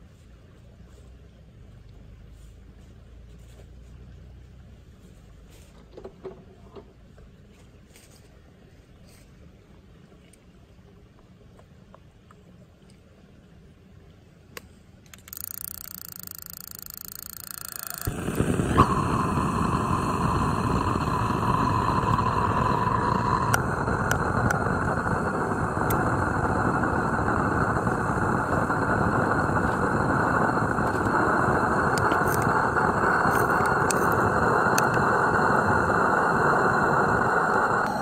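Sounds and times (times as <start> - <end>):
steady whine: 15.1 - 38.0
gas burner rushing: 17.2 - 38.0.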